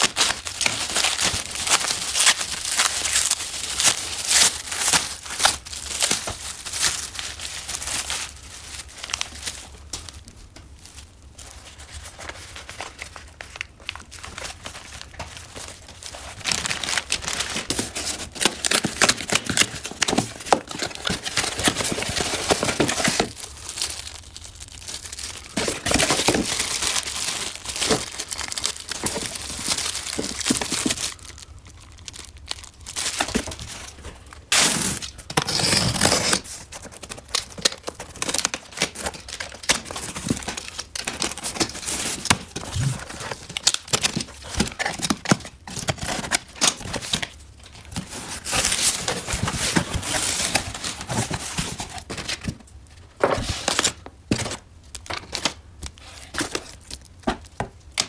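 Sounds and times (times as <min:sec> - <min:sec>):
plastic bag crinkling: 0:00.0 - 0:52.8
cardboard rustling: 0:10.8 - 0:57.7
knife slitting packing tape: 0:34.5 - 0:36.5.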